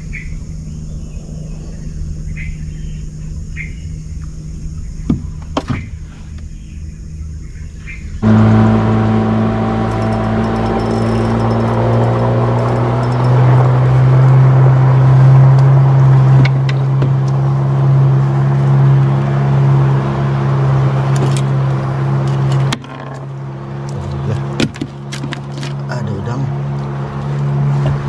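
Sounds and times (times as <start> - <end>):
boat engine idling: 8.2 - 17.0.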